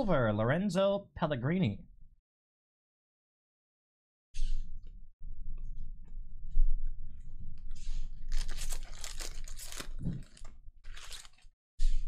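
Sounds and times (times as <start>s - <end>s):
foil wrapper tearing and crinkling: 8.2s - 11.5s.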